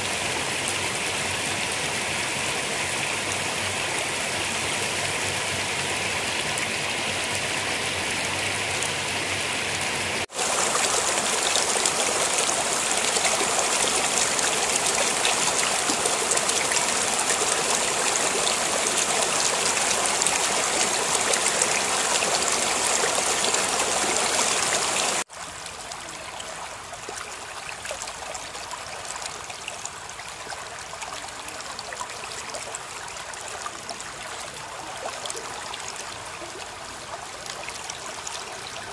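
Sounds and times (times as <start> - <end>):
water rushing over a ledge: 10.2 - 25.3.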